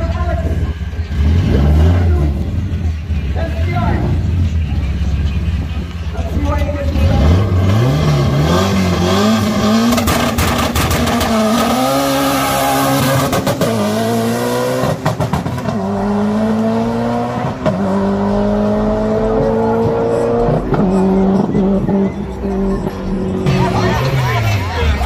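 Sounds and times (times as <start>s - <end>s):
car engine revving through gears: 1.1s - 2.8s, 7.0s - 24.8s.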